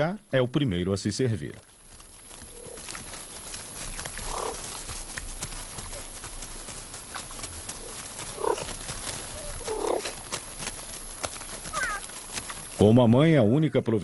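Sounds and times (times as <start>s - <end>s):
dry grass rustling: 1.1s - 13.8s
chewing: 2.4s - 12.8s
serval kittens calling: 4.1s - 4.7s, 7.8s - 10.2s, 11.5s - 12.3s.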